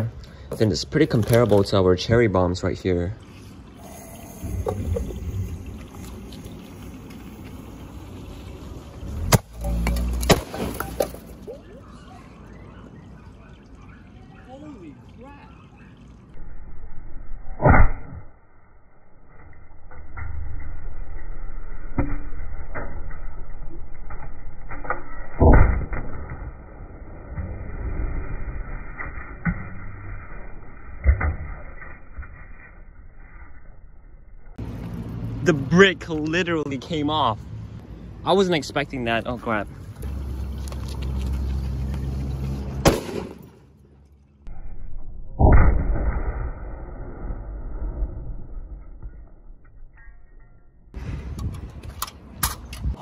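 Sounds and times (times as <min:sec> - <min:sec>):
firecracker boom: 0:42.8 - 0:43.5.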